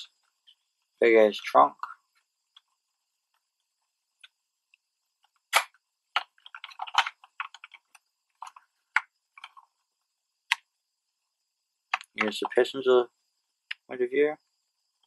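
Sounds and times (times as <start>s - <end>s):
small clicks and taps on model car: 6.1s - 9.7s
sharp clicks: 11.9s - 12.6s.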